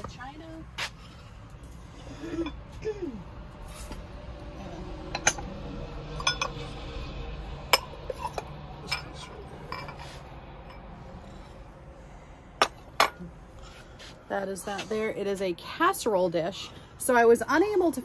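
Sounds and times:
ceramic dishes clinking: 5.1 - 5.5, 6.2 - 6.6, 7.7 - 10.8.

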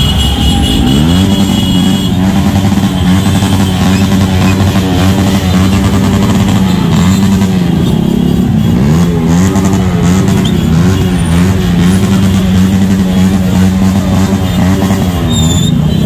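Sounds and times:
motorcycle engines revving in traffic: 0.0 - 16.0.

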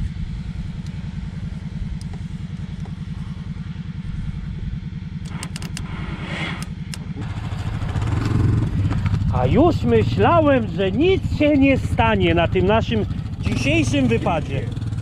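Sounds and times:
engine idling low putter: 0.0 - 15.0
sharp clicks: 5.2 - 7.1.

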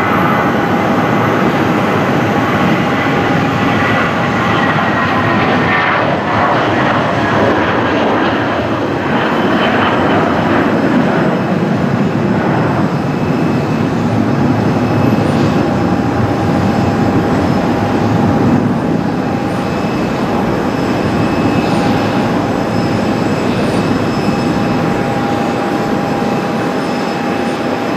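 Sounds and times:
jet engines rumbling: 0.0 - 27.9
thin jet engine whine: 0.0 - 27.9.

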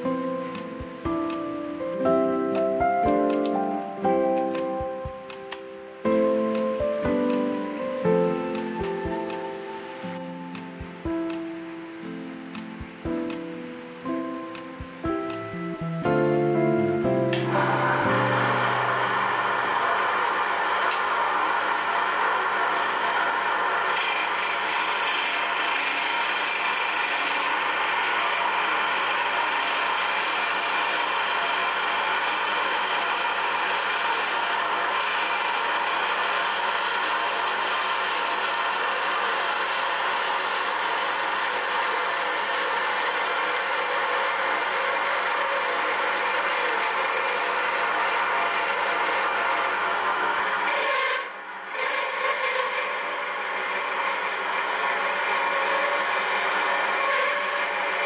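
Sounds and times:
wood lathe humming: 4.3 - 13.0, 15.1 - 58.0
turning tool scraping wood: 22.8 - 58.0.

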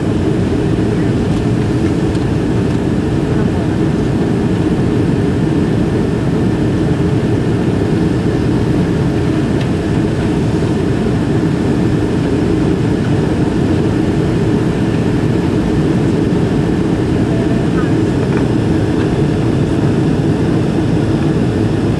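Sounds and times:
jet engine cabin roar: 0.0 - 21.9.

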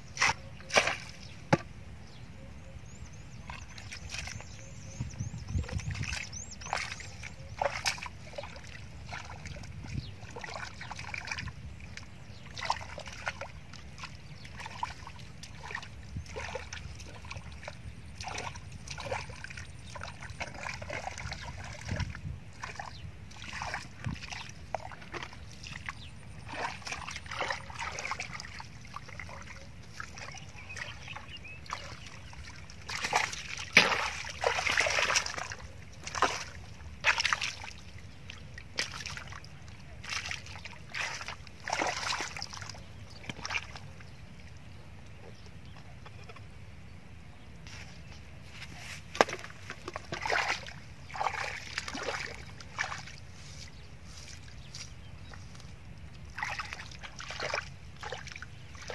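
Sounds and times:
feet splashing in muddy puddle: 0.1 - 1.6, 5.6 - 44.1, 48.5 - 58.9.

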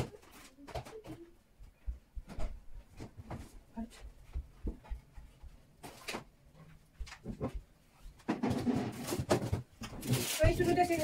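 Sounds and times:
packages and drawers rustling clattering: 5.8 - 6.4, 7.0 - 11.0.

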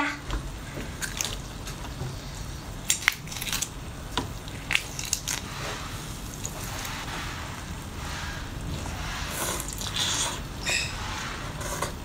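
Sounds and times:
wet squishing: 0.6 - 1.9, 2.8 - 10.6
prawn shell cracking: 2.9 - 3.8, 4.4 - 5.5.

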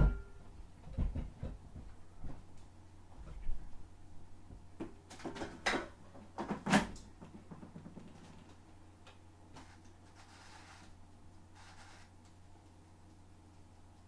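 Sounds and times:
air fryer knocks and clunks: 0.0 - 2.4
faint room hum: 0.0 - 14.0.

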